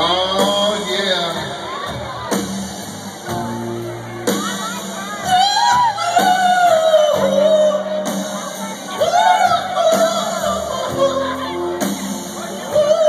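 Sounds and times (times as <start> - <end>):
man singing: 0.0 - 1.6, 5.2 - 13.0
live rock band: 0.0 - 13.0.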